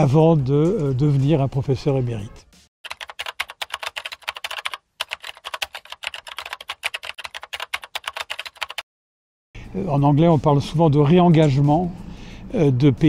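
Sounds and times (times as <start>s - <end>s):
rapid keyboard keystrokes: 2.8s - 8.8s.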